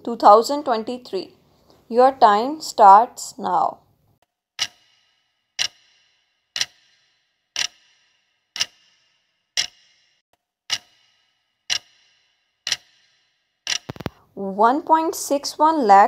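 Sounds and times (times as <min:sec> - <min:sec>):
clock ticking with ringing tail: 0:04.6 - 0:14.2.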